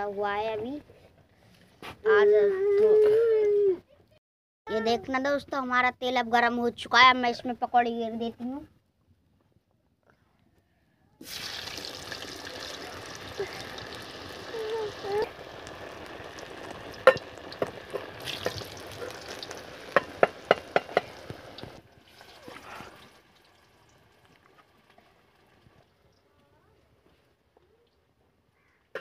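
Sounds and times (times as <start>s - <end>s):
food sizzling in hot oil: 11.2s - 26.0s
oil pops: 15.8s - 21.8s.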